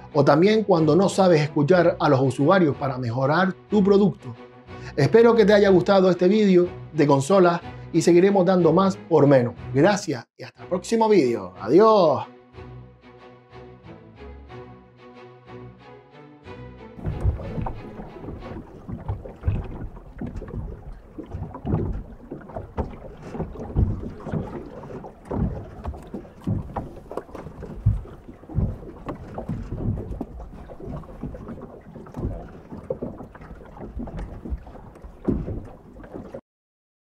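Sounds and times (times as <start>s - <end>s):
wind on microphone: 17.0s - 33.2s
small waves lapping: 17.0s - 36.4s.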